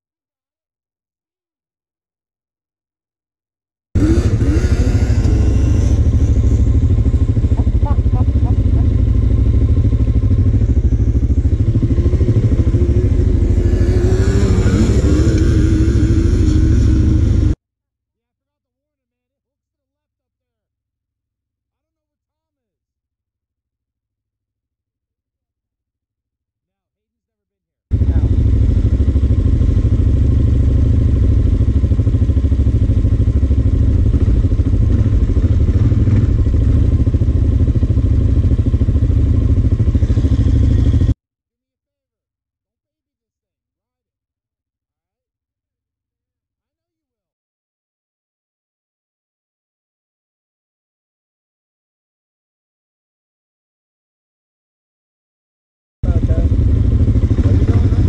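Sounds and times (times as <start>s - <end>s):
quad engine idling: 4.0s - 17.6s, 27.9s - 41.2s, 56.0s - 58.0s
quad engine revving: 4.0s - 17.6s, 27.9s - 41.2s, 56.0s - 58.0s.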